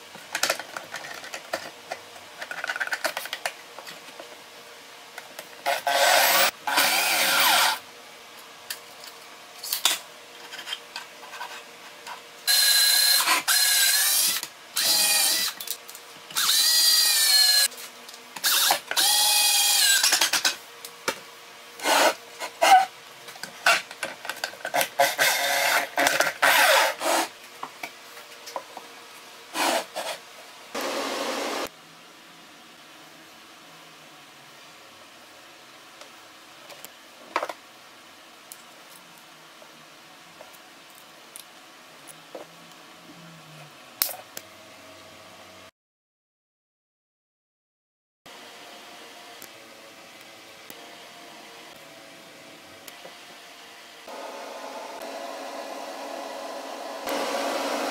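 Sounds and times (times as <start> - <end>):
cordless drill driving screws: 5.8 - 7.8, 12.5 - 15.5, 16.4 - 17.7, 18.5 - 20.1.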